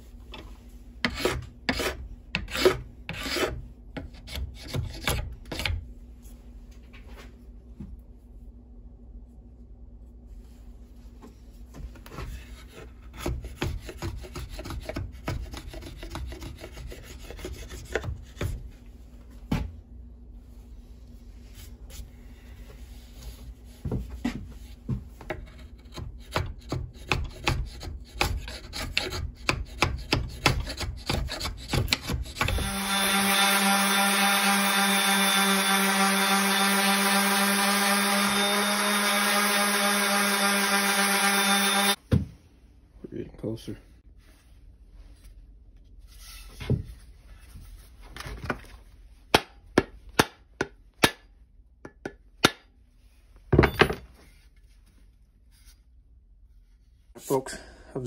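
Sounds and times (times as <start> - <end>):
rasp scraping wood: 1.0 - 5.7, 12.3 - 18.6, 25.3 - 42.0
electric disc sander whine: 32.5 - 42.0.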